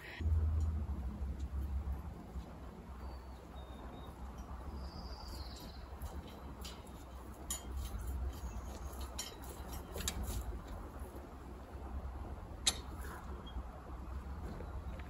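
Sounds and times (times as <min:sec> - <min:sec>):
low outdoor rumble: 0:00.0 - 0:15.0
garden tool clicking and clinking: 0:06.0 - 0:10.4.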